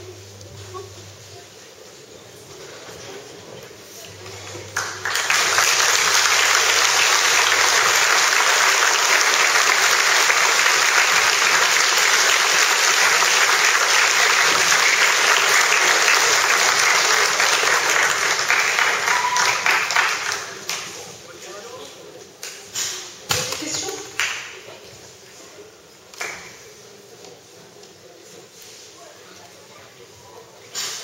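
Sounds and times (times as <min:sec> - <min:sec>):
faint murmur of crowd: 0:00.0 - 0:31.0
crowd applauding: 0:04.2 - 0:21.0.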